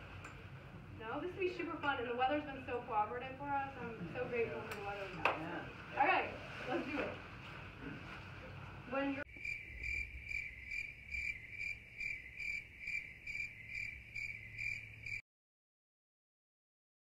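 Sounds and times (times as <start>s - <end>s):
cricket chirping: 9.3s - 15.2s.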